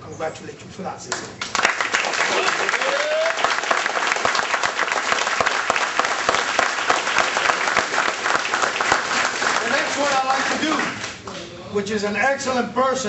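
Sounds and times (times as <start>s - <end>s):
people applauding: 1.4s - 11.4s.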